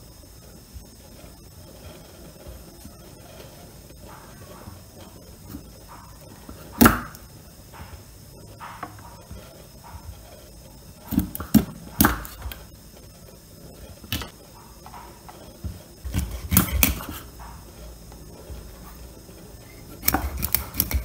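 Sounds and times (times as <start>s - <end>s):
cleaver chopping on wooden board: 6.6s - 7.2s.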